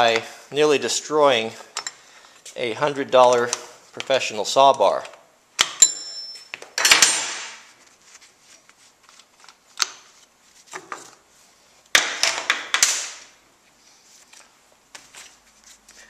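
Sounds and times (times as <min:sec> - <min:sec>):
metal clinks and knocks: 0:05.8 - 0:07.1.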